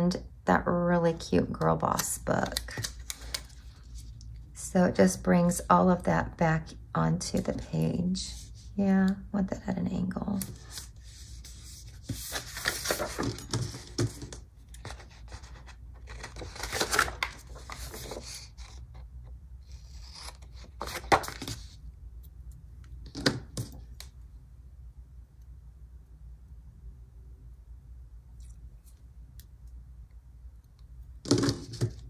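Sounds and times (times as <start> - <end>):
paper stickers rustling: 12.0 - 18.8.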